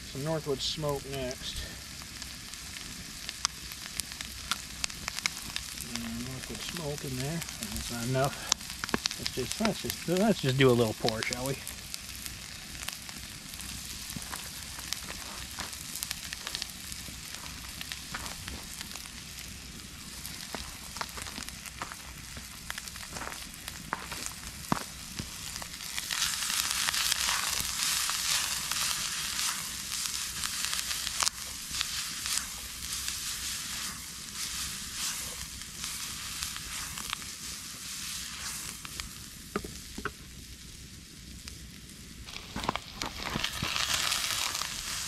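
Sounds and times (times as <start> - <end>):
onions sizzling in frying pan: 0.0 - 45.0
sharp clicks and pops: 2.8 - 11.5, 38.7 - 40.3, 42.3 - 44.5.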